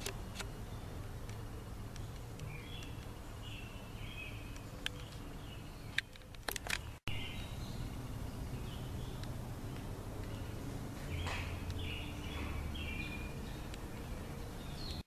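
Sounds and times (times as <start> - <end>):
birds chirping: 0.0 - 15.0
low outdoor rumble: 0.0 - 15.0
sharp clicks: 5.9 - 7.0.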